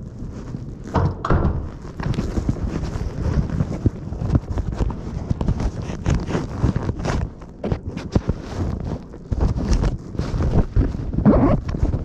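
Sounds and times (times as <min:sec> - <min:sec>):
knocks and rattles: 0:00.9 - 0:03.9.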